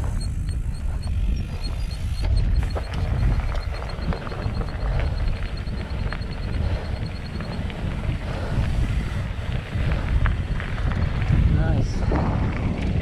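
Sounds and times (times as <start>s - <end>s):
faint rapid high ticking: 0.0s - 9.2s
wind buffeting microphone: 0.0s - 13.0s.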